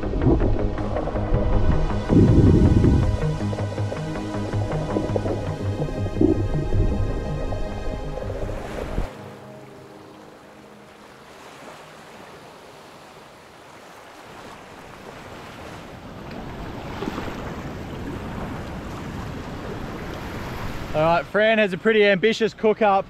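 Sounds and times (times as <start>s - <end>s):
wind on microphone: 0.0s - 3.6s, 4.8s - 9.1s
music: 0.0s - 11.8s
small waves washing on sand: 10.1s - 21.3s.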